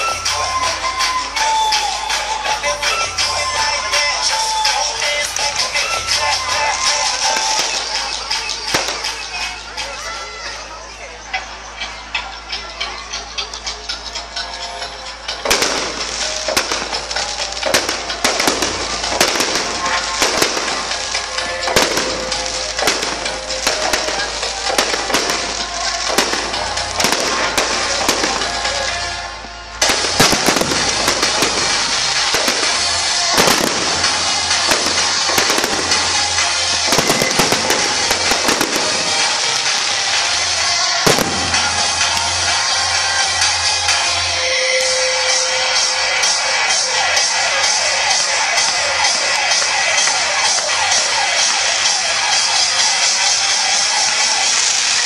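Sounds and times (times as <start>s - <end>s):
fireworks crackling: 0.0s - 11.0s, 14.1s - 55.0s
firework shell bursts: 15.4s - 28.7s, 29.8s - 45.4s.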